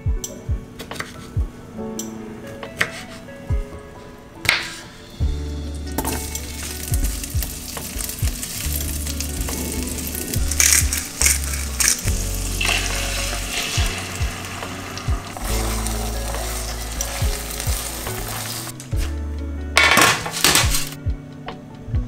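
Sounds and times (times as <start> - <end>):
tomatoes sizzling in frying pan: 5.1 - 18.8.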